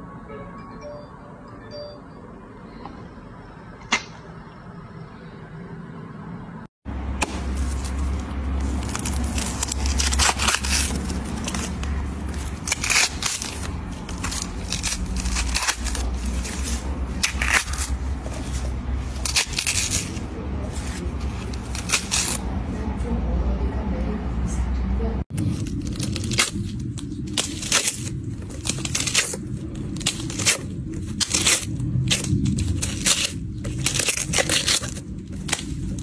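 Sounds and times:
steady low rumble: 0.0 - 36.0
watermelon cracking and crackling: 7.1 - 22.4, 25.3 - 36.0.

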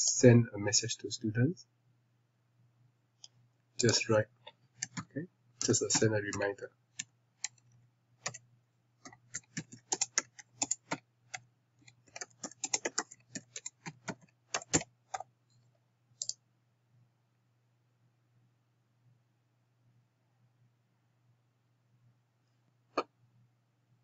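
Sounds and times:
quick clicks: 3.8 - 4.1
keyboard typing: 3.8 - 4.2, 4.8 - 8.4, 9.0 - 15.3.

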